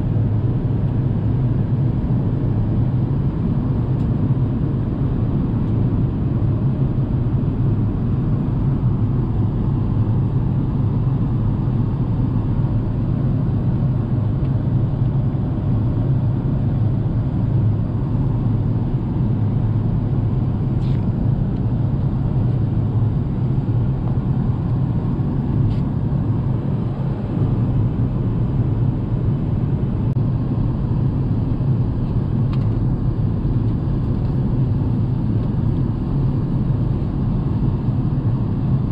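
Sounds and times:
airplane cabin engine rumble: 0.0 - 38.9.

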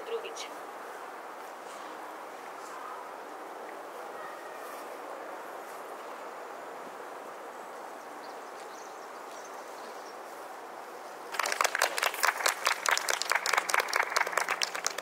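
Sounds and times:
audience applause: 11.3 - 15.0.

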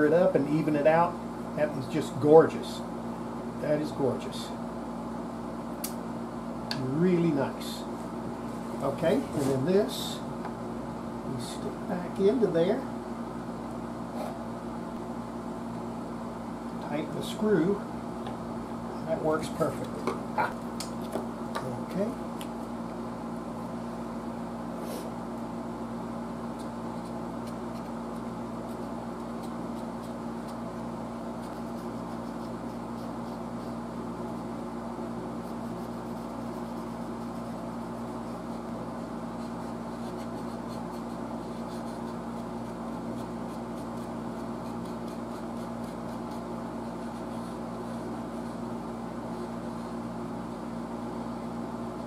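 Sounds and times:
low machine hum: 0.0 - 52.0
marker scratching on knob: 39.4 - 47.6.

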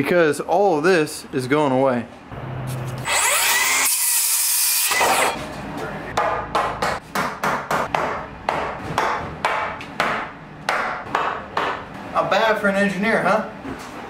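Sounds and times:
circular saw cutting wood: 3.0 - 5.4.

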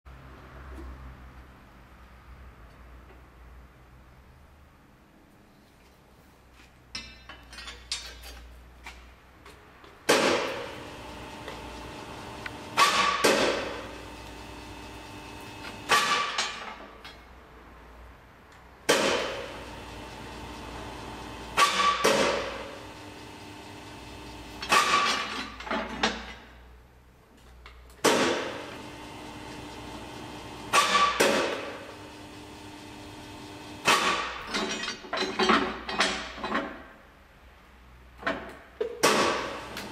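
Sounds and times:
rebar bender motor running: 10.4 - 16.1, 19.3 - 24.9, 28.4 - 34.0
loud metallic clanks: 12.7 - 14.2.

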